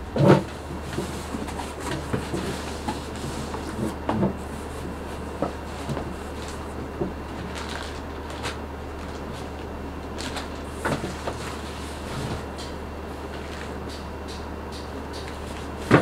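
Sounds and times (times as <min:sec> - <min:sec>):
steady low hum: 0:00.0 - 0:16.0
packaging rustling and crinkling: 0:04.5 - 0:12.5.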